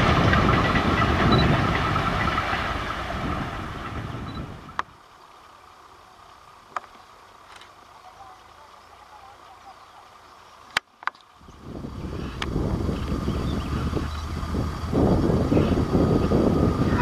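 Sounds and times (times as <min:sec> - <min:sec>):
wind rumble on microphone: 0:00.0 - 0:05.0, 0:11.3 - 0:17.0
train rumble: 0:00.0 - 0:10.6, 0:11.4 - 0:17.0.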